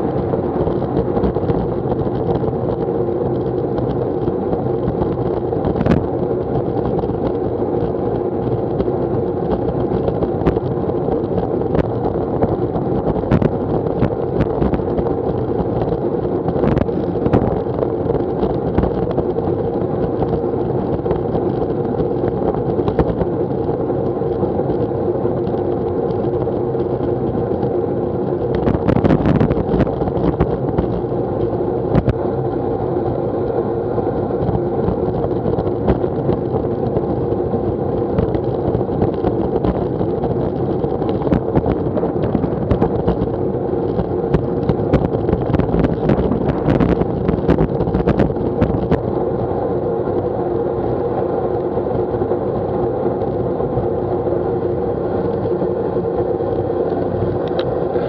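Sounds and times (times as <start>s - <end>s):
knocks and rattles from road: 0.0s - 58.0s
road and wind rush: 0.0s - 58.0s.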